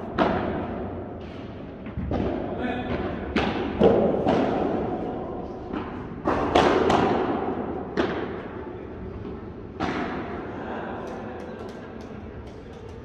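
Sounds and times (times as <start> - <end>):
ball struck by rackets: 0.1 - 0.9, 1.8 - 5.1, 5.7 - 8.5, 9.7 - 10.4.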